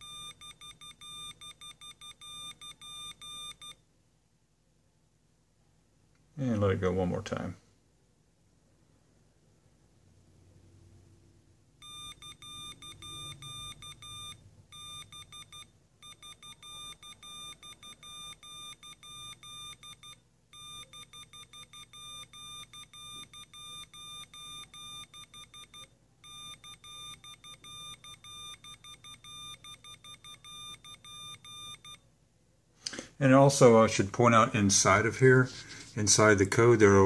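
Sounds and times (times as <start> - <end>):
buzzer beeping morse code: 0.0 - 3.8, 11.8 - 32.0.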